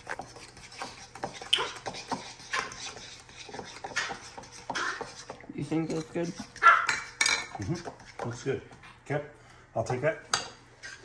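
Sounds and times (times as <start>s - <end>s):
fork scraping and tapping a bowl: 0.0s - 8.5s.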